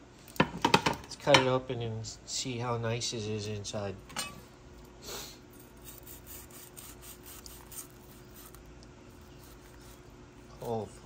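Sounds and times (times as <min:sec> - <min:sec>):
knife rasping through crust: 0:05.5 - 0:10.8.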